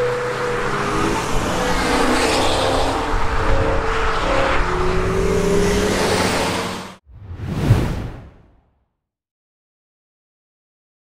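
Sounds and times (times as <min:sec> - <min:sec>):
sports car engines accelerating: 0:00.0 - 0:07.0.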